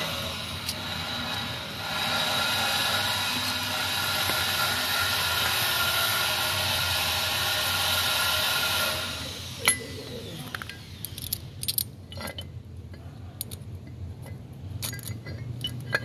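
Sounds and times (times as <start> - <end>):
machine whine: 0.0 - 11.5
metal pump parts clinking: 10.5 - 16.0.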